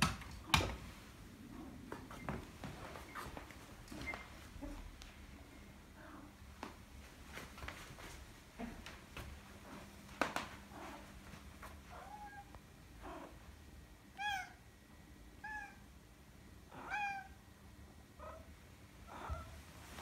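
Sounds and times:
cat meowing: 0:16.7 - 0:17.4.

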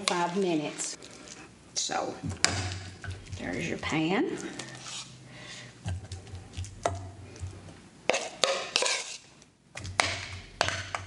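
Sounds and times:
spoon clinking and scraping bowl: 0:08.1 - 0:09.3.

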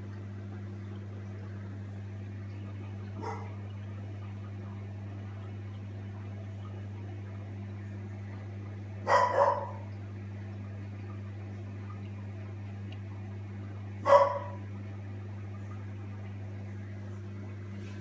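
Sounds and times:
steady low hum: 0:00.0 - 0:18.0
animal bark-like calls: 0:09.1 - 0:09.9.

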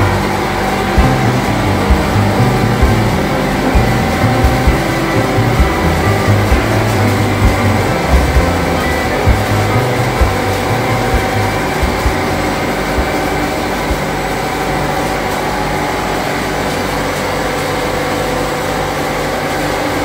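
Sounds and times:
machinery hum with steady tones: 0:00.0 - 0:20.0.

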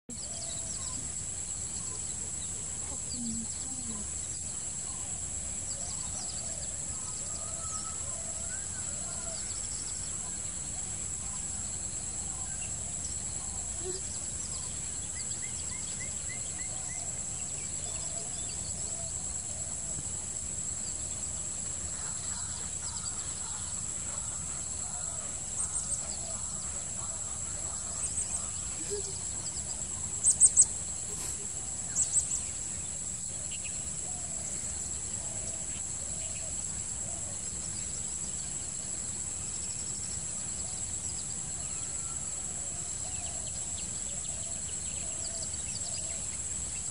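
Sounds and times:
faint bird chirps: 0:00.1 - 0:20.0
high-pitched insect drone: 0:00.1 - 0:46.9.

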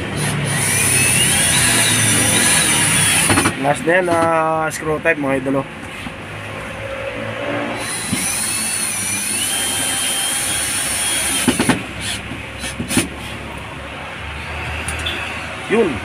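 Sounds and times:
cordless drill whining: 0:00.2 - 0:03.5, 0:07.8 - 0:13.0.

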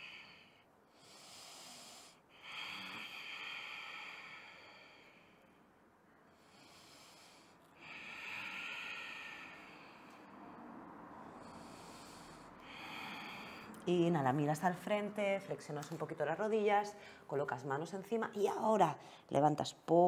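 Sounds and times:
woman breathing slowly: 0:00.0 - 0:13.9, 0:17.0 - 0:17.3.

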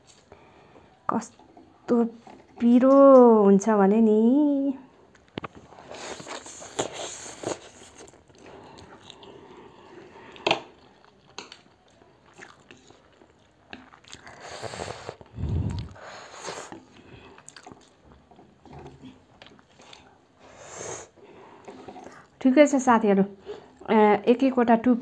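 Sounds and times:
slurping and chewing noodles: 0:05.7 - 0:22.4.

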